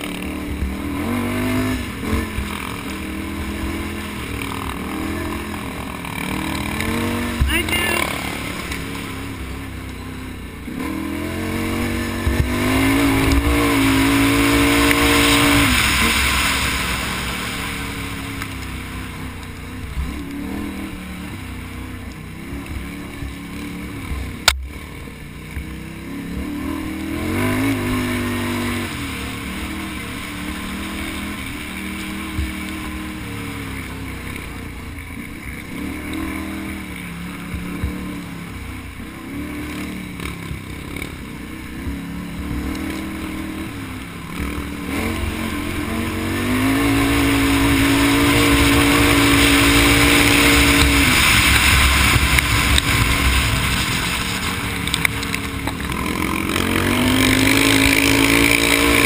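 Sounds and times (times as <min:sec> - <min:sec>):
atv engine revving: 0:00.0 - 0:59.0
sharp crack: 0:47.1 - 0:56.2.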